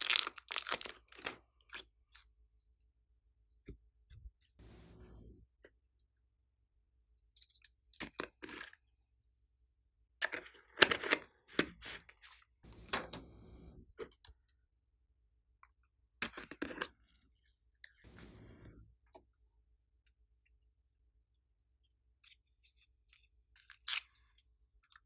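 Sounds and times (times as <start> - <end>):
plastic bottle crackling: 0.0 - 1.3.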